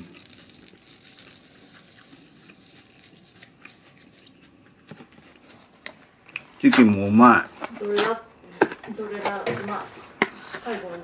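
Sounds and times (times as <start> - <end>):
person chewing: 0.0 - 7.0.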